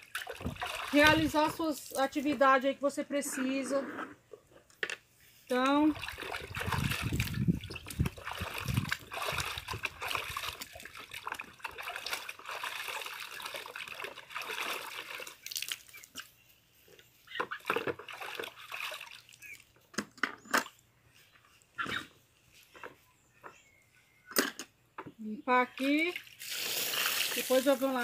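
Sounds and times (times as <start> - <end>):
water sloshing and splashing: 0.0 - 2.5, 5.5 - 16.3, 17.3 - 19.9, 25.6 - 28.0.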